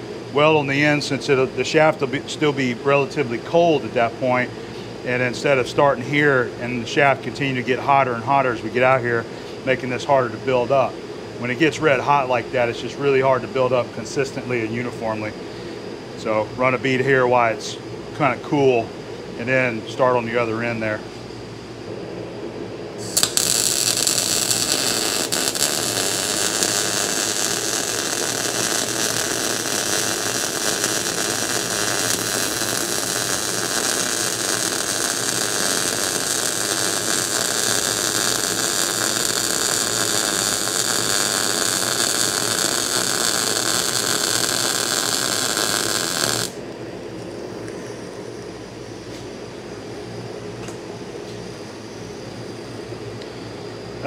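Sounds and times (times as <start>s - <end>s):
welding arc hissing: 0.0s - 3.2s, 23.0s - 46.6s.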